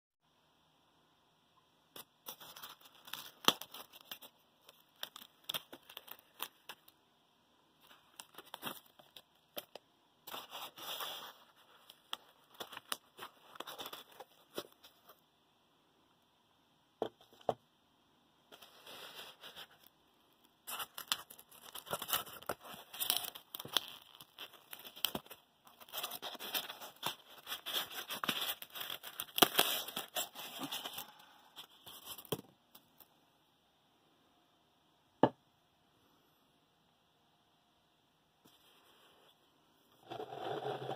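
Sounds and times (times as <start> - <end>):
plastic wrap crinkling: 2.2 - 7.0, 20.6 - 32.4
foam rubbing and scraping: 40.0 - 40.9.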